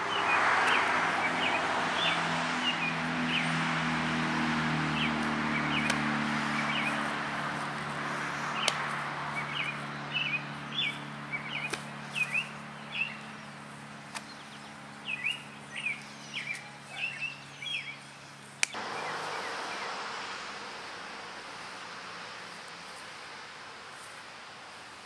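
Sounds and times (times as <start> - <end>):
steady outdoor hiss: 0.0 - 25.0
small bird chirping: 9.4 - 21.8
low hum: 17.2 - 25.0.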